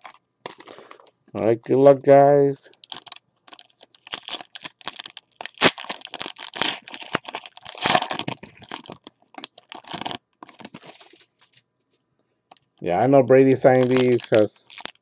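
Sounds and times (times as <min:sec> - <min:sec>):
foil wrapper crinkling: 0:00.0 - 0:01.1, 0:02.7 - 0:11.6, 0:13.5 - 0:15.0
sharp crack of foil tearing: 0:02.8 - 0:11.3, 0:13.6 - 0:15.0.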